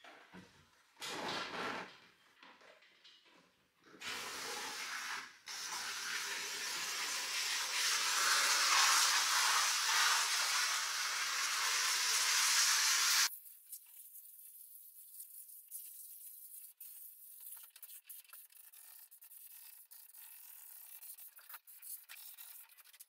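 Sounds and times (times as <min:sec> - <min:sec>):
spray gun hissing: 0:05.5 - 0:13.3.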